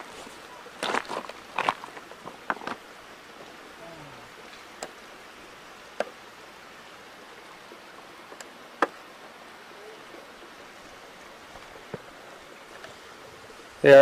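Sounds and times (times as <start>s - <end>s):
footsteps on rocky trail: 0.0s - 3.5s
steady hiss: 0.0s - 14.0s.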